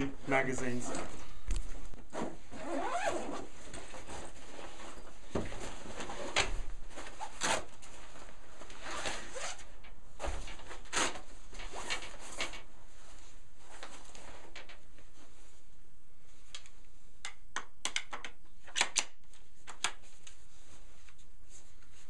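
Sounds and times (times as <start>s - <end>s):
fabric swishes and scrapes: 1.6s - 16.4s
zipper pulls: 2.1s - 4.2s, 8.7s - 9.7s.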